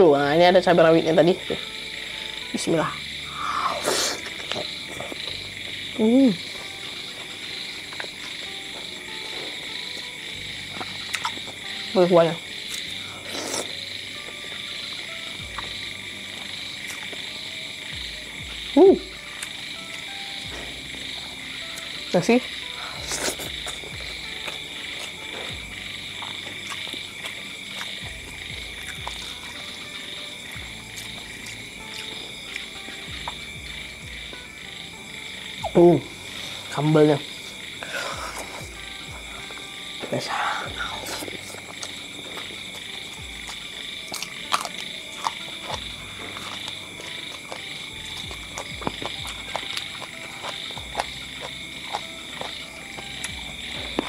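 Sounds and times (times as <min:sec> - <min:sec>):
chorus of frogs calling: 0:00.0 - 0:54.0
low frog croaks: 0:10.0 - 0:54.0
person eating clicks: 0:10.8 - 0:11.6, 0:41.0 - 0:54.0.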